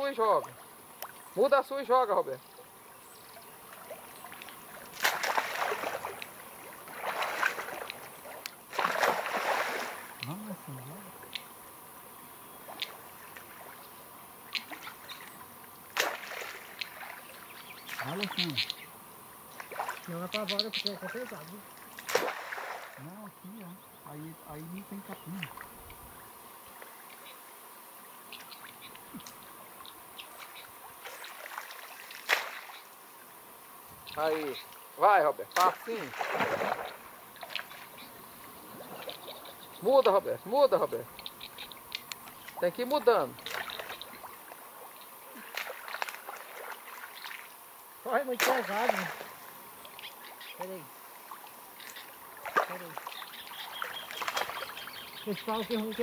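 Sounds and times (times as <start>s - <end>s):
water splashing and sloshing: 3.2s - 10.6s, 12.6s - 18.7s, 19.5s - 23.0s, 28.3s - 33.4s, 35.6s - 56.0s.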